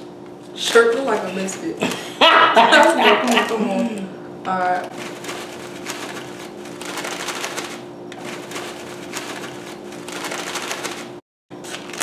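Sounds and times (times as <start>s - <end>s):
steady low hum: 0.0s - 12.0s
foil chip bag crinkling: 4.9s - 12.0s.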